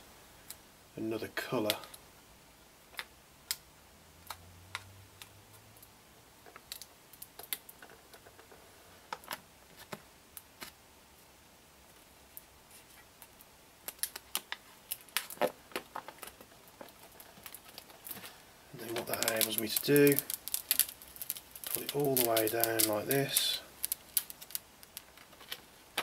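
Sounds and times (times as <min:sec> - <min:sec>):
adhesive sheet crackling and clicking: 0:13.2 - 0:26.0.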